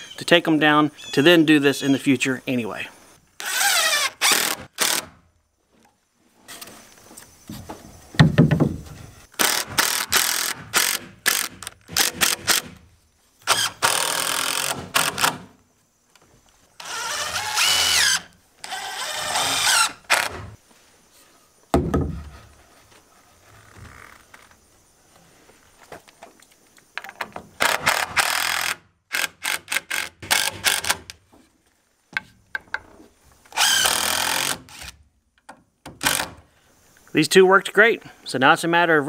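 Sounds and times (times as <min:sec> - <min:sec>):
board knocks: 0:08.2 - 0:09.0, 0:21.7 - 0:22.3.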